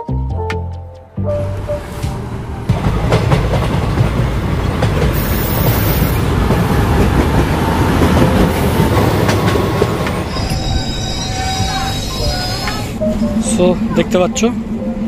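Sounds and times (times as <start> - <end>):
diesel locomotive engine rumbling: 1.1 - 15.0
train wheels clattering: 1.8 - 13.0.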